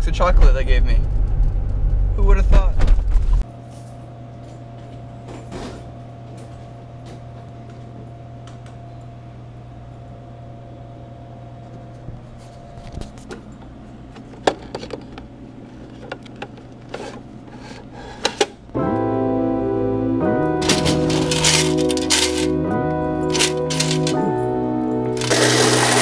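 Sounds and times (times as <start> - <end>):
electrical hum: 0.0 - 26.0
cash box clicks and knocks: 20.6 - 22.5, 23.3 - 24.2.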